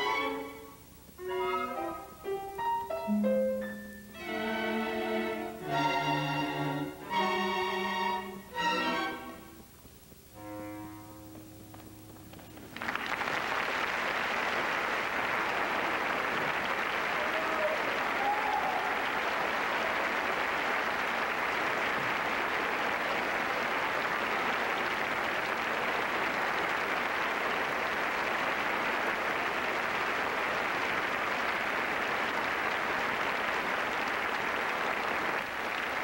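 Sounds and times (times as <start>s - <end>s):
audience applauding: 11.3s - 36.0s.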